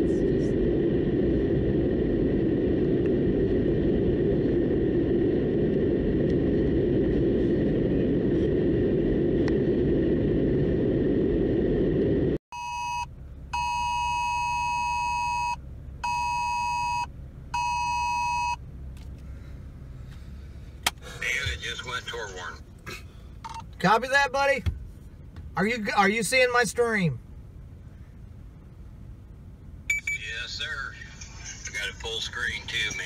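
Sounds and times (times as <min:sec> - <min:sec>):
road and engine noise in vehicle: 0:00.0 - 0:33.0
phone emergency alert beeps: 0:12.6 - 0:18.6, 0:29.9 - 0:30.6.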